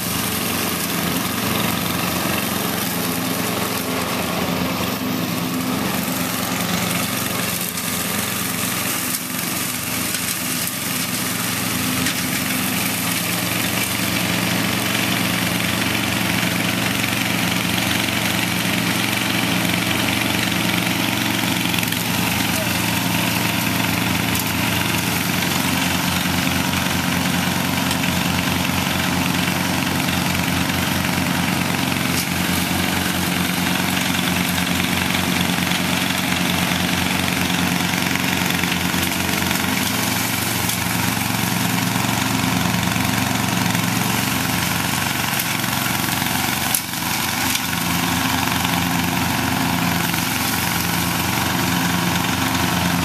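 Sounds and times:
riding lawn mower engine running: 0:00.0 - 0:53.0.

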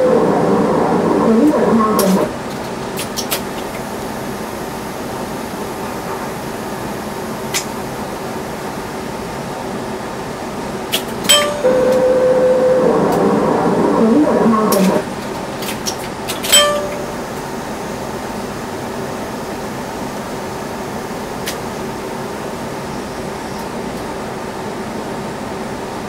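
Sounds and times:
steady hum: 0:00.0 - 0:23.6
brief tone: 0:11.3 - 0:15.0, 0:16.5 - 0:17.3.

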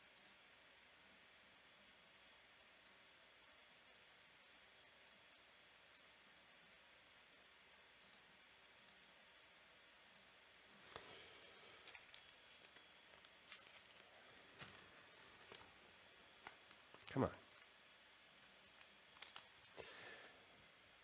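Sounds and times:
card rustling and clicks: 0:10.8 - 0:17.7, 0:18.4 - 0:20.0.

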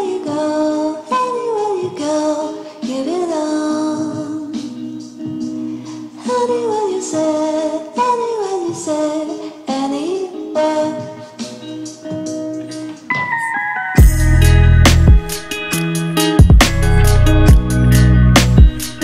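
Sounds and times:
logo intro music: 0:13.1 - 0:19.0.

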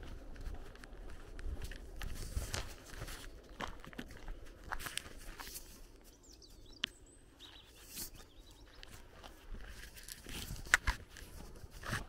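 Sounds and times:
footsteps through grass and twigs: 0:00.0 - 0:06.8, 0:07.4 - 0:12.0
faint bird chirps: 0:06.0 - 0:09.0.

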